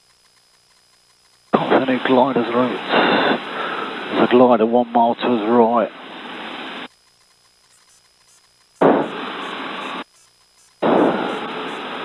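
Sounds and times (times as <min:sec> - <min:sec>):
intercom noise bursts: 0:08.8 - 0:10.0, 0:10.8 - 0:12.0.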